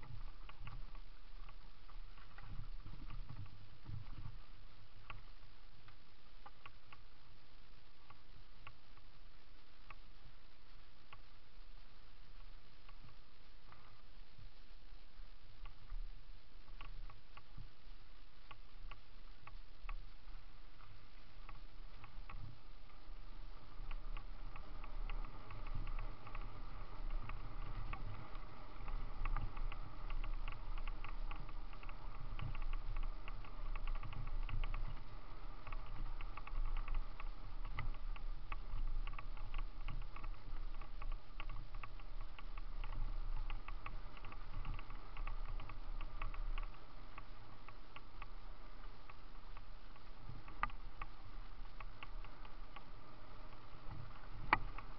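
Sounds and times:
bike clicks and rattles: 0.0 - 7.1, 18.5 - 54.9
bike tyre trail noise: 0.0 - 54.9.

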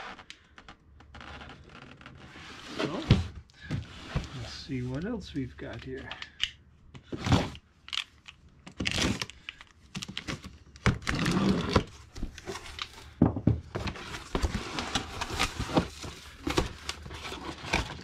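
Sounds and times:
cardboard packaging rustling: 8.7 - 18.0.

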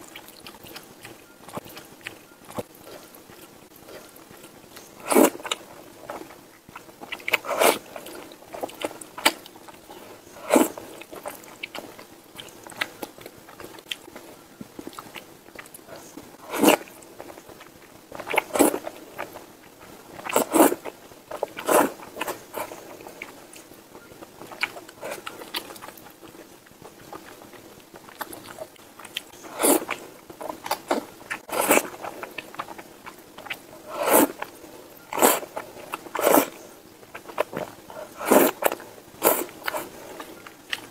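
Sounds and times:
chewing: 0.0 - 40.9
person slurping noodles: 29.5 - 30.0, 31.5 - 32.0, 33.8 - 34.4, 35.2 - 36.6, 37.9 - 40.2.

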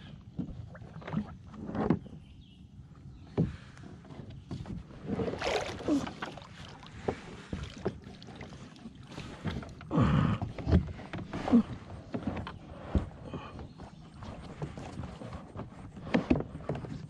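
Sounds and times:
paddle splashing through water: 4.6 - 17.0.

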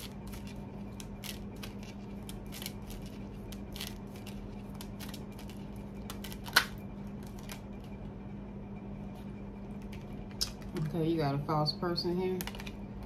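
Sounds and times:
playing cards shuffling: 0.0 - 7.6.

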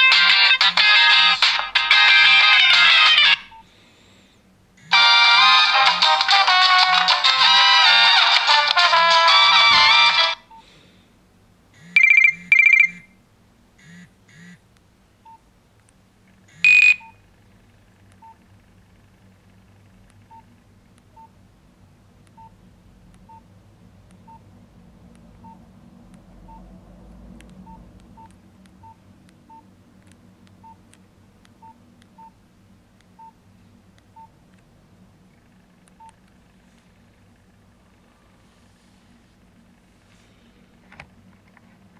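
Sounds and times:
phone keypad beeps: 11.8 - 13.1, 16.6 - 17.2.

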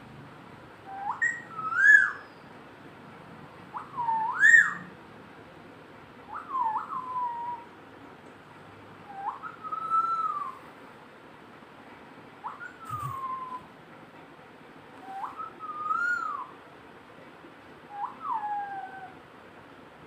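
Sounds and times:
parakeet whistling: 0.9 - 2.4, 3.8 - 4.9, 9.1 - 10.6, 12.4 - 13.7, 15.0 - 16.5.

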